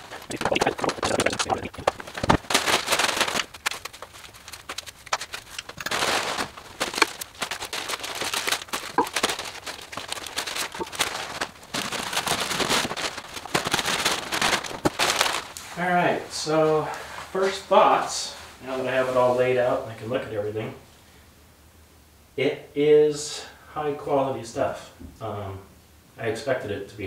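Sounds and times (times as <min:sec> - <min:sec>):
plastic packaging crinkling: 0:00.0 - 0:15.8.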